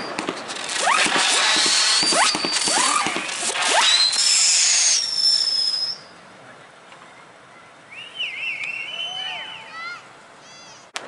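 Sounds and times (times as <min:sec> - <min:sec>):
fireworks hissing and crackling: 0:00.0 - 0:06.0
fireworks whistling: 0:00.0 - 0:06.2.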